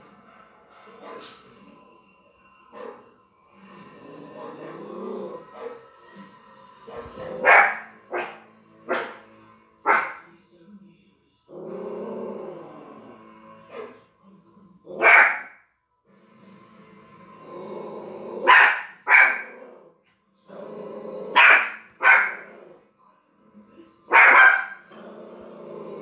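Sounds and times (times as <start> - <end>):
small dog barking: 7.4 - 9.2, 9.9 - 10.2, 15.0 - 15.5, 18.4 - 19.5, 21.3 - 22.5, 24.1 - 24.8.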